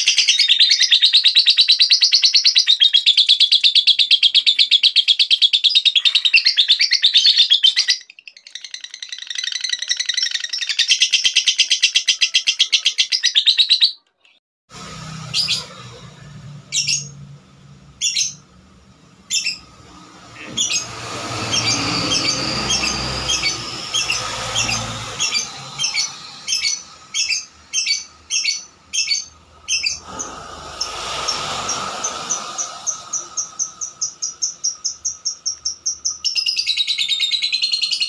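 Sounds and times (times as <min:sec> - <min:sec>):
lovebird chirps: 0:19.3 - 0:19.8, 0:21.5 - 0:38.0.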